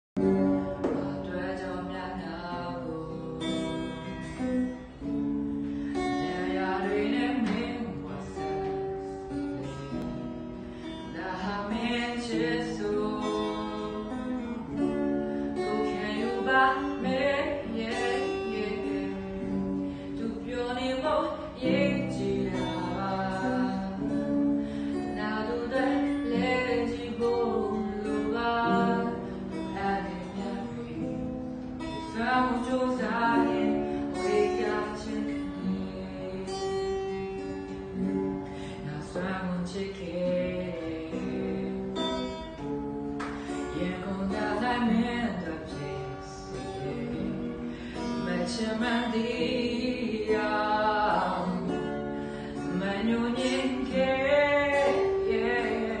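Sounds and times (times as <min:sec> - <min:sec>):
acoustic guitar strumming: 0:00.2 - 0:56.0
person singing: 0:05.7 - 0:10.3, 0:11.0 - 0:15.0, 0:15.6 - 0:37.7, 0:38.5 - 0:42.5, 0:43.6 - 0:56.0.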